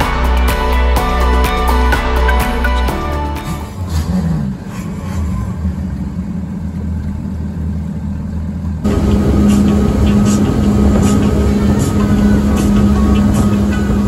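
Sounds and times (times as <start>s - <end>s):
outboard engines rumbling: 3.4s - 14.0s.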